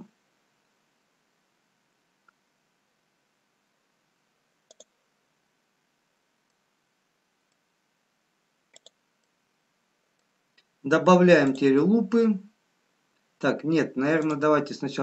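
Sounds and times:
computer mouse double clicks: 0:04.7 - 0:04.9, 0:08.7 - 0:09.0.

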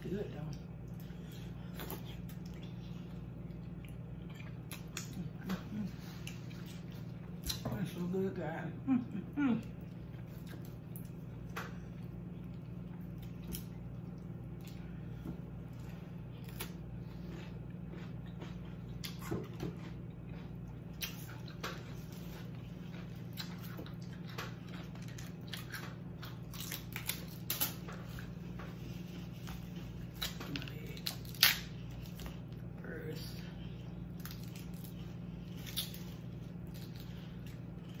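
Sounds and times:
steady low hum: 0:00.0 - 0:38.0
chewing: 0:00.5 - 0:07.7, 0:09.6 - 0:38.0
crab leg cracking: 0:30.1 - 0:32.3.

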